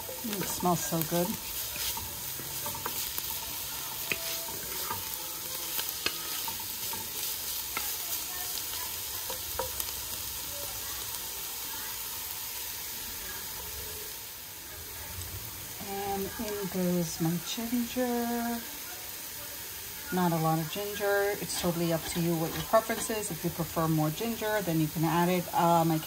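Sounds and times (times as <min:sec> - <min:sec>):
wooden spoon stirring in pot: 0:00.0 - 0:12.5, 0:19.9 - 0:26.0
vegetables sizzling in oil: 0:00.0 - 0:26.0.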